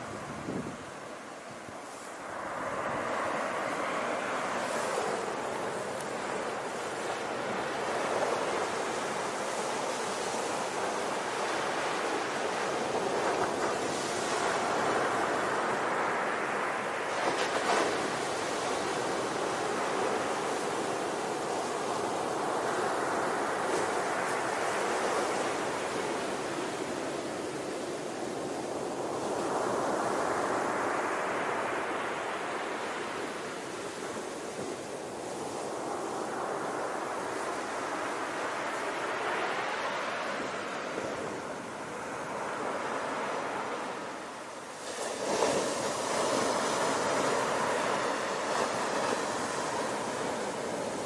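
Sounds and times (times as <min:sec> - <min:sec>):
sea waves breaking on beach: 0:00.0 - 0:51.0.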